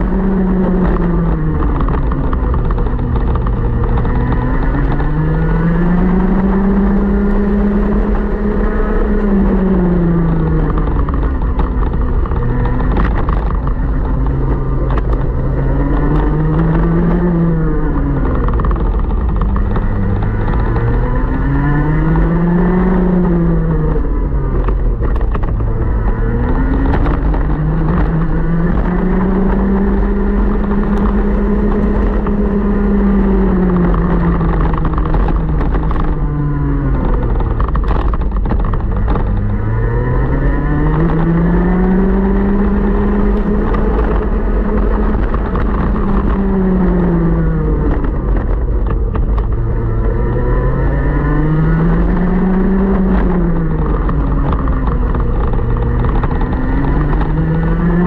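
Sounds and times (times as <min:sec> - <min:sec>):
kart engine accelerating: 0:00.0 - 0:58.0.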